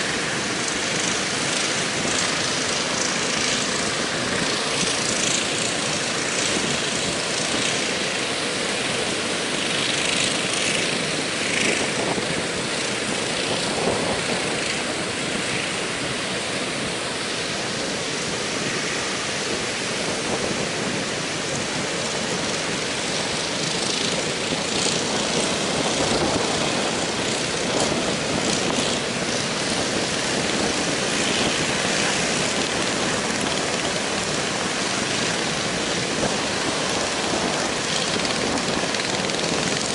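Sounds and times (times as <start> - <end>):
strong wind: 0.0 - 39.9
heavy surf breaking: 12.4 - 39.9.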